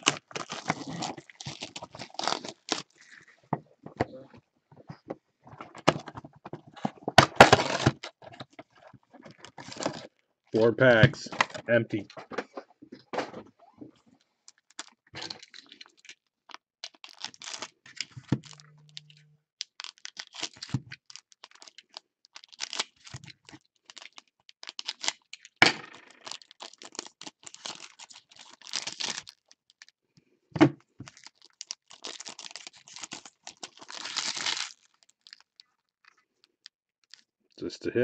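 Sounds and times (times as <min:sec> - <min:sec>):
wrappers tearing and crinkling: 0:00.0 - 0:03.4, 0:07.3 - 0:08.2, 0:09.2 - 0:10.7, 0:14.5 - 0:29.9, 0:31.0 - 0:37.3.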